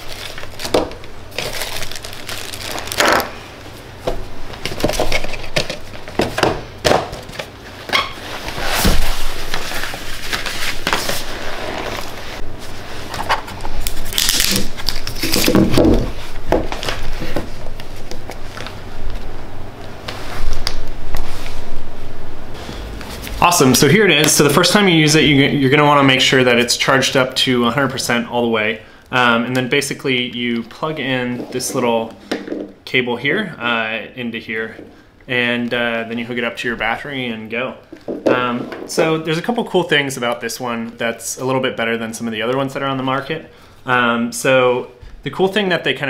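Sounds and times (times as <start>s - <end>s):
cardboard and plastic rustling: 0.0s - 3.4s, 4.0s - 19.3s.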